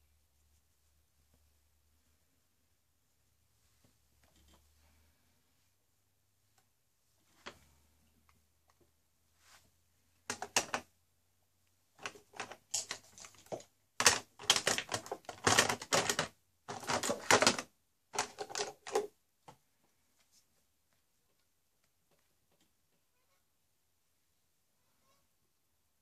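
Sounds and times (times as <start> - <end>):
small hard objects rattling: 10.3 - 10.8, 12.0 - 19.1.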